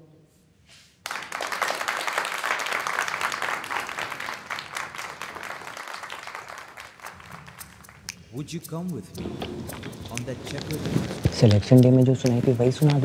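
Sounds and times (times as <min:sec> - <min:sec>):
audience applause: 0:01.0 - 0:08.2.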